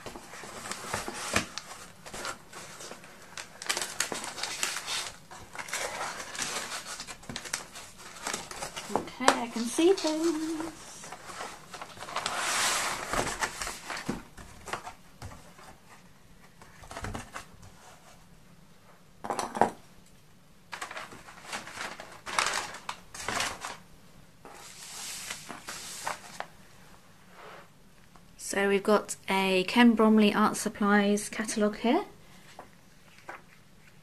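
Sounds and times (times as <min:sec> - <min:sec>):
packing paper rustling and crinkling: 0:00.0 - 0:18.0, 0:20.7 - 0:26.6.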